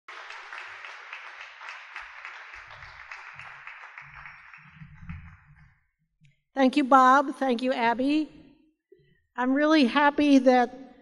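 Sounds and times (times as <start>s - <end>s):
audience applauding: 0.1s - 5.8s.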